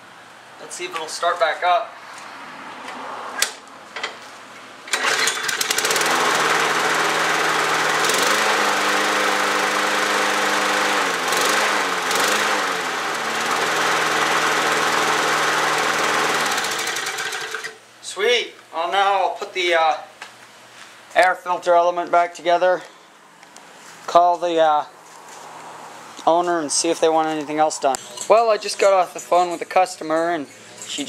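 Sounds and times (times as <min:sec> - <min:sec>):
lawn mower engine running: 0:04.9 - 0:17.8.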